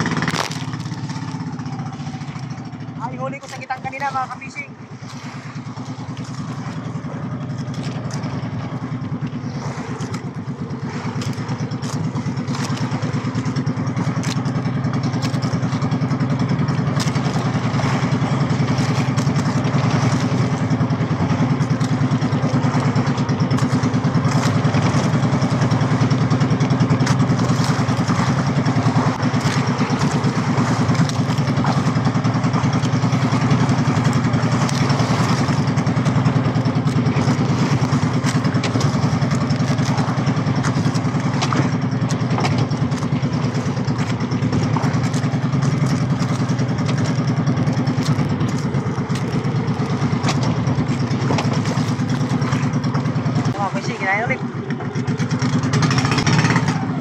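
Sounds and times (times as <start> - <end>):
small boat engine running: 0.0 - 57.0
water rushing along hull: 0.0 - 57.0.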